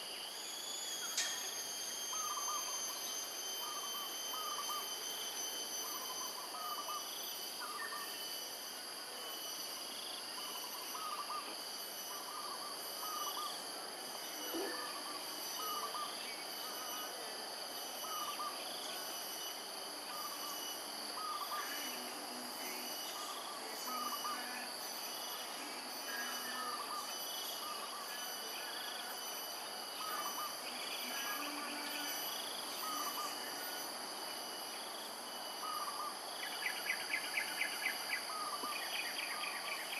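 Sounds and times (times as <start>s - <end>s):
high insect chorus: 0.0s - 39.9s.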